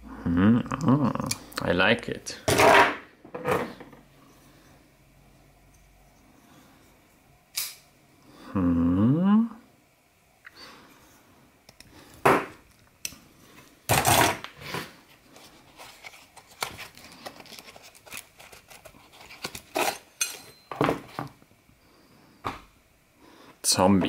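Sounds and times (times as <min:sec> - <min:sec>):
nylon sheath rustling: 0:14.2 - 0:20.0.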